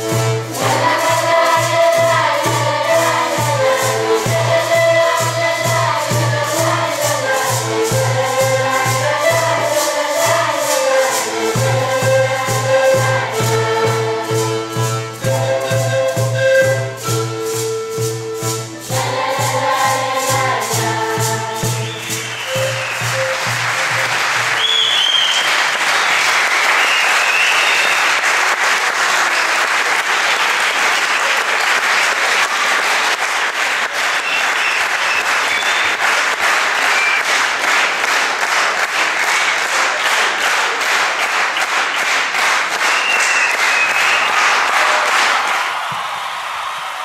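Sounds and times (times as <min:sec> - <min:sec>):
audience applause: 0:21.8 - 0:47.0.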